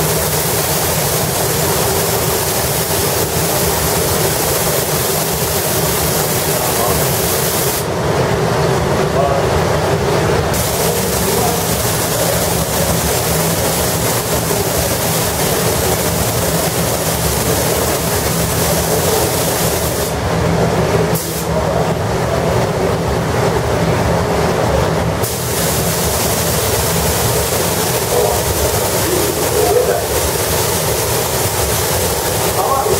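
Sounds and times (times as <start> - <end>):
spray gun hissing: 0.0 - 7.9, 10.5 - 20.2, 25.2 - 32.9
machinery rumble: 7.8 - 25.2, 25.8 - 32.9.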